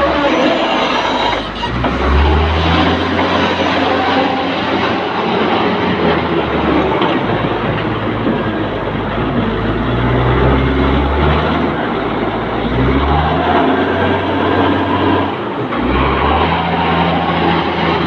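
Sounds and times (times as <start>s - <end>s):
loader diesel engine revving: 0.0s - 18.0s.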